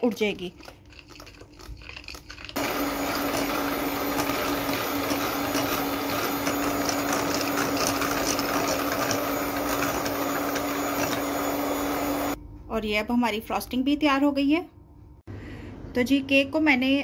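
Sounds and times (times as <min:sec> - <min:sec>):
electric beater motor hum: 0:02.6 - 0:12.4.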